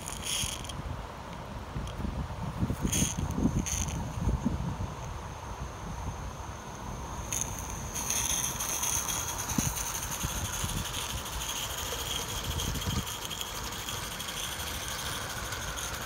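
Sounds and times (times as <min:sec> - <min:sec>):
wind buffeting microphone: 0:00.6 - 0:06.4, 0:07.2 - 0:16.0
steam hissing: 0:06.4 - 0:16.0
train rattling over track: 0:07.3 - 0:16.0.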